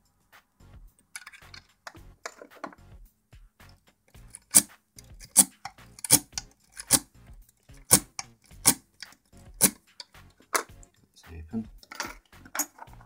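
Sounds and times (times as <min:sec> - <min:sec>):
lock pick metallic clicks: 0:01.0 - 0:02.4, 0:03.6 - 0:11.0.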